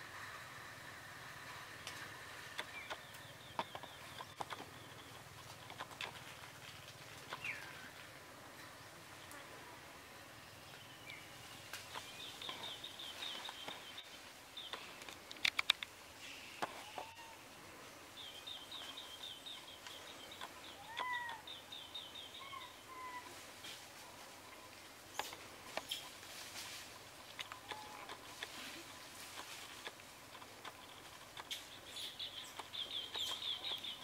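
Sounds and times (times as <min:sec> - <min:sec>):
faint background noise: 0:00.0 - 0:34.0
sharp clicks: 0:01.8 - 0:04.8, 0:14.6 - 0:16.0, 0:27.2 - 0:28.6
birds chirping trill: 0:02.0 - 0:06.2, 0:10.2 - 0:17.5, 0:18.1 - 0:23.3, 0:29.4 - 0:34.0.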